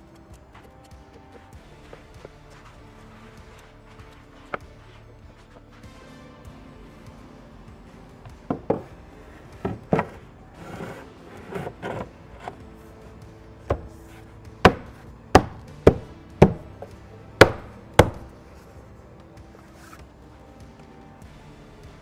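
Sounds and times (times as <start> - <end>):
faint background music: 0.0 - 22.0
wooden board rubbing against stair: 8.5 - 13.0
sharp wooden knocks: 14.6 - 18.3.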